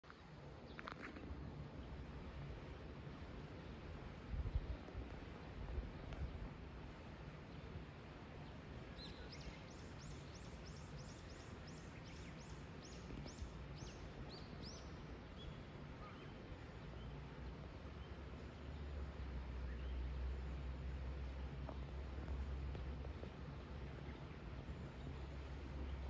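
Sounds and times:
low steady hum: 0.1s - 26.0s
small bird singing: 8.4s - 17.2s.

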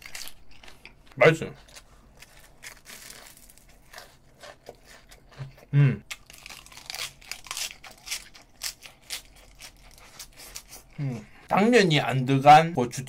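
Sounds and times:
crunchy chewing: 0.0s - 11.0s
person humming mmm: 5.7s - 6.0s.

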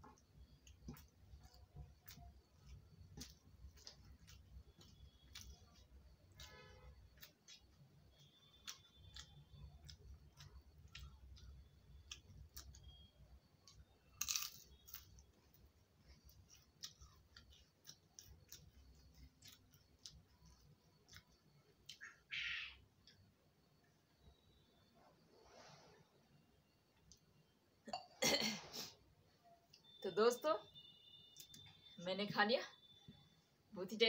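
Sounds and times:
person chewing: 0.2s - 22.0s.

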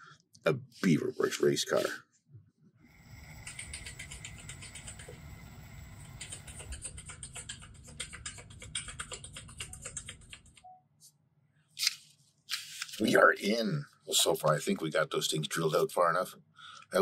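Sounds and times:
power drill motor hum: 3.0s - 6.7s.

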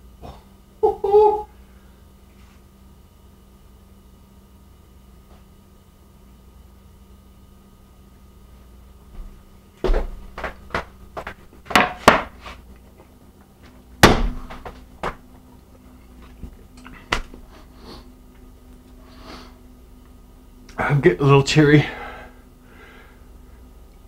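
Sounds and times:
objects knocking on kitchen counter: 9.9s - 12.4s.

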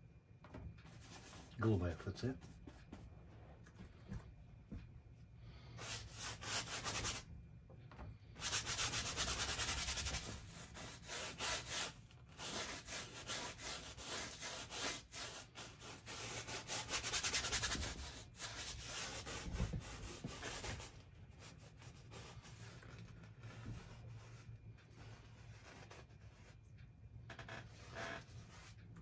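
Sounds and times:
brush scrubbing on canvas: 8.4s - 26.6s.

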